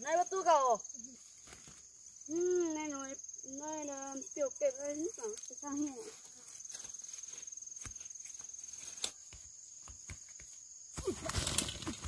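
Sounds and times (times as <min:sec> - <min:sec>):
high-pitched insect trill: 0:00.0 - 0:12.0.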